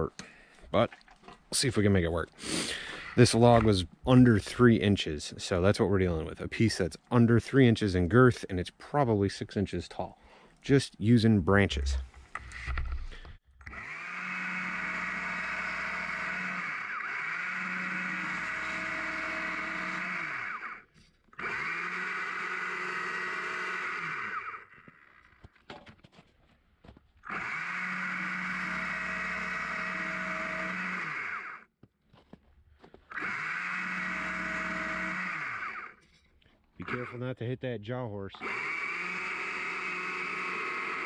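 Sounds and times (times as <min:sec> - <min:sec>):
electric chainsaw cutting log: 0:12.2 - 0:25.5, 0:27.2 - 0:31.7, 0:33.1 - 0:36.0, 0:36.8 - 0:37.2, 0:38.4 - 0:41.0.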